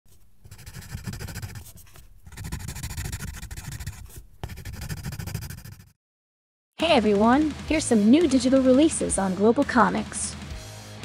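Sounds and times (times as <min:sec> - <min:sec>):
pencil scribbling on paper: 0:00.1 - 0:06.0.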